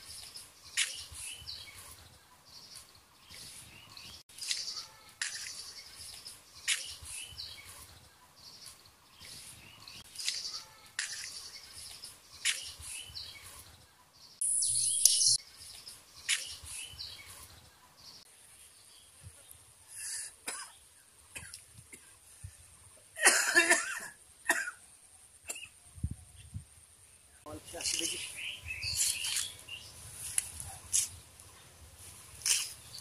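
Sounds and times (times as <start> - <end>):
faint bird chirps: 0.0 - 18.3, 27.3 - 30.3
man coughing: 23.2 - 24.8.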